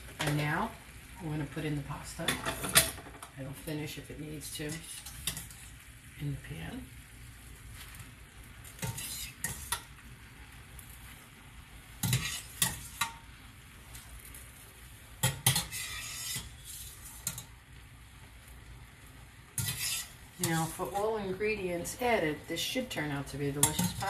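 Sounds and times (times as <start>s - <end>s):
sauce sizzling: 0.0s - 24.0s
metal utensil clattering on pan: 2.2s - 3.3s, 4.7s - 5.6s, 8.8s - 9.9s, 12.0s - 13.2s, 15.2s - 17.5s, 19.6s - 21.0s, 23.5s - 24.0s
pasta added to pan: 4.4s - 24.0s.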